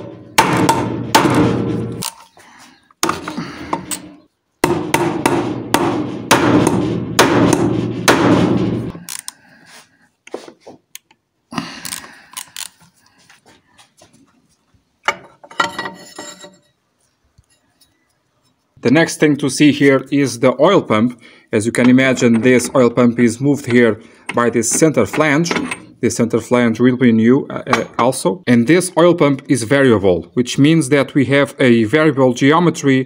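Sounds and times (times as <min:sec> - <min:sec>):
metal tool impacts: 0:00.0 - 0:02.4, 0:03.0 - 0:09.3, 0:15.0 - 0:16.8, 0:21.8 - 0:23.0, 0:23.6 - 0:26.0
metal parts clinking: 0:01.9 - 0:02.4, 0:11.8 - 0:12.8, 0:15.1 - 0:16.8.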